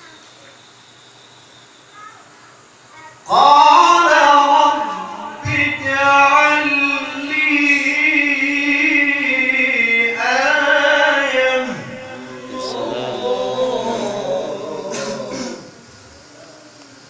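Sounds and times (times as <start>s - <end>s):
man reciting melodically: 3.3s - 15.9s.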